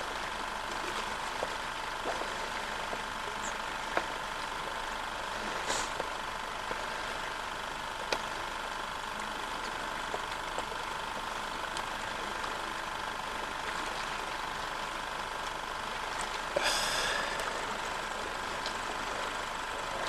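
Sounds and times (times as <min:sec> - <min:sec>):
motor humming with high tones: 0:00.0 - 0:20.0.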